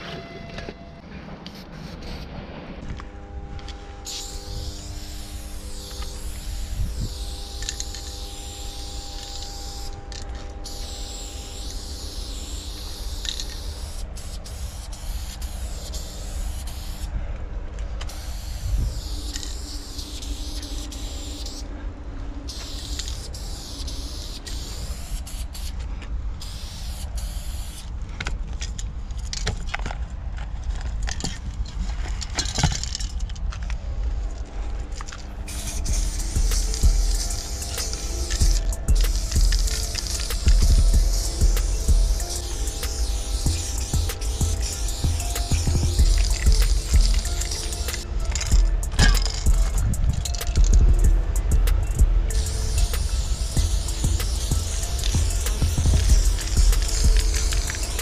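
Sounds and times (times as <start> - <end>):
spray paint can hissing: 1.4 - 2.3, 4.0 - 17.2, 18.0 - 21.7, 22.4 - 29.9, 32.2 - 33.3, 35.0 - 58.0
low rumble: 33.3 - 42.3, 43.2 - 58.0.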